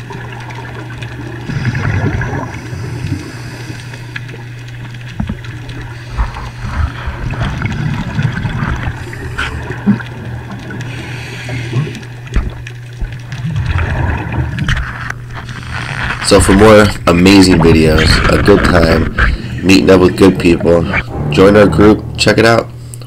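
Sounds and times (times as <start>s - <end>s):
bubbles gurgling: 0.0s - 22.8s
steady low hum: 0.0s - 23.0s
diver breathing through regulator: 1.5s - 4.4s, 5.8s - 10.0s, 10.7s - 12.2s, 19.1s - 19.7s.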